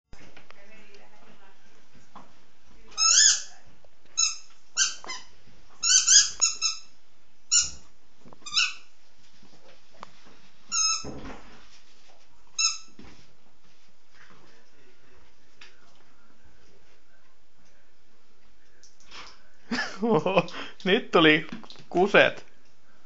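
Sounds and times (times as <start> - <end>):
squeaky toy squeaks: 3.0 - 3.5, 4.2 - 6.9, 7.5 - 7.8, 8.4 - 8.9, 10.7 - 11.0, 12.6 - 12.9.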